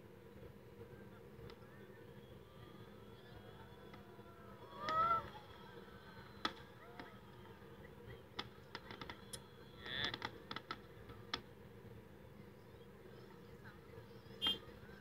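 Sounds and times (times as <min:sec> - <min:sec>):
fireworks popping and cracking: 0:04.7 - 0:12.0.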